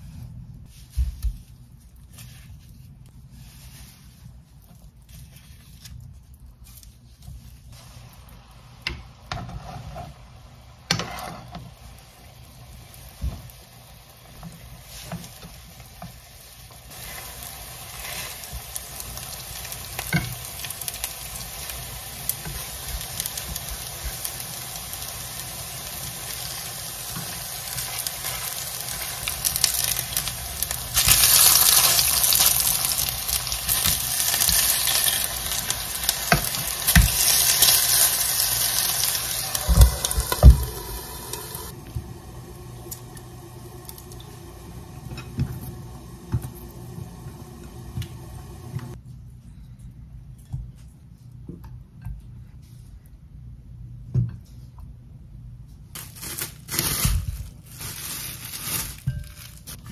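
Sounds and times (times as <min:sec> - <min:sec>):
patties sizzling in a pan: 0:07.7 - 0:49.0.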